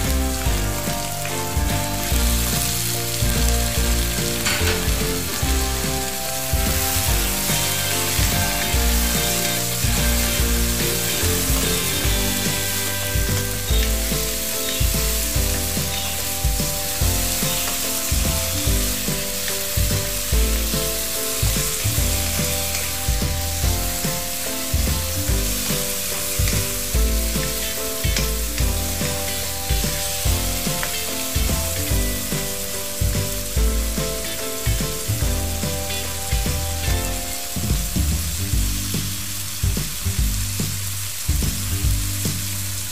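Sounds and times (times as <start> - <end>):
background music: 0.0 - 42.9
vegetables sizzling in oil: 0.0 - 42.9.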